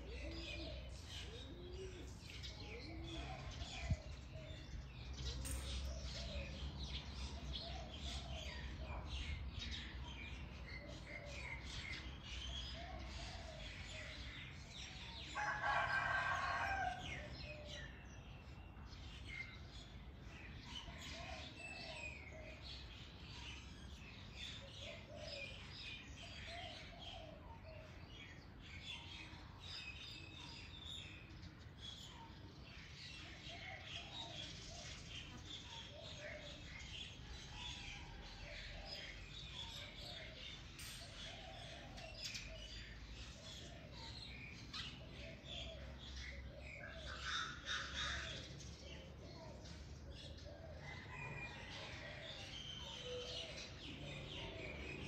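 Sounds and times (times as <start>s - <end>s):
birds chirping and calling: 0.0s - 55.0s
rooster crowing: 15.4s - 17.2s.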